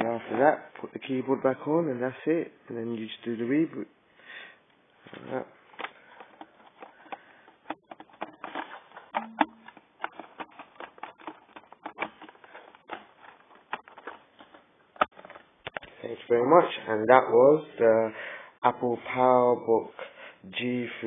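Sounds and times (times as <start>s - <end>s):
plastic keyboard clicks: 5.8s - 15.8s.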